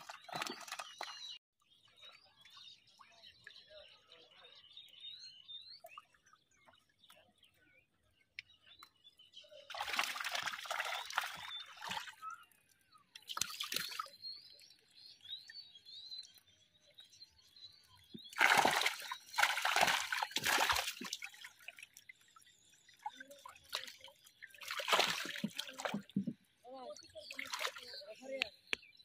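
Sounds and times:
fish flapping in water: 0:00.0 - 0:01.4, 0:09.7 - 0:12.2, 0:18.3 - 0:22.0, 0:24.6 - 0:26.2
water splashing in a boat: 0:00.0 - 0:16.4, 0:17.9 - 0:28.6.

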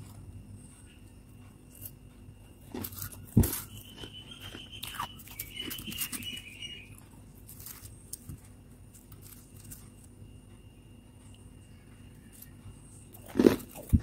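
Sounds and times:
spoon crunching frost: 0:02.7 - 0:06.8.

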